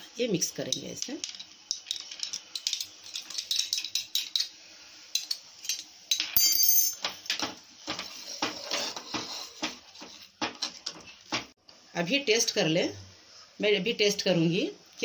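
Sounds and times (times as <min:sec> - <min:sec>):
sharp ringing clink: 0:06.4 - 0:07.0
ladle scraping in a pan: 0:07.9 - 0:11.2.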